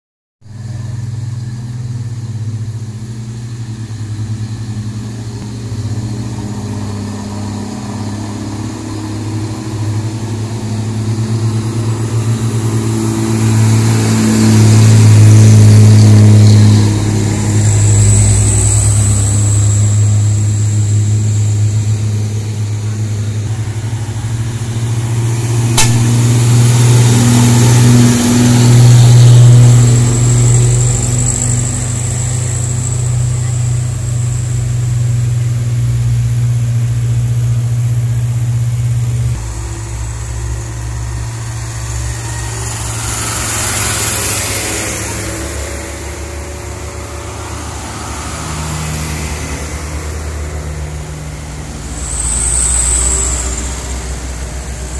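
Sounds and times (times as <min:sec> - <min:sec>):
high whine: 0:00.5 - 0:54.9
truck diesel engines droning: 0:00.5 - 0:54.9
sharp click: 0:25.7 - 0:26.2.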